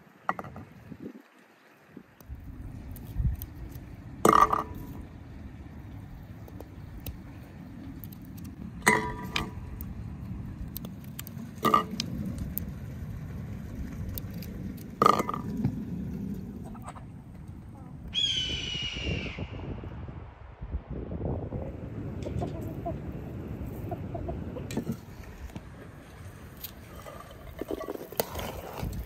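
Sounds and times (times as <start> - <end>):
chicken calling: 22.2 - 24.7.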